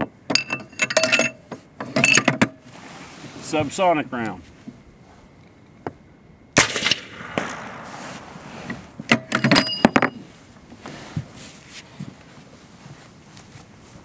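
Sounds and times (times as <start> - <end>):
brass case clinking: 0.3 - 2.5, 8.7 - 10.3
suppressed rifle shot: 6.6 - 9.3.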